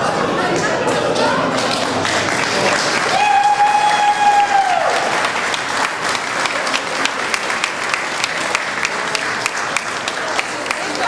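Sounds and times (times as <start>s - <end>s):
audience applauding: 0.4s - 11.0s.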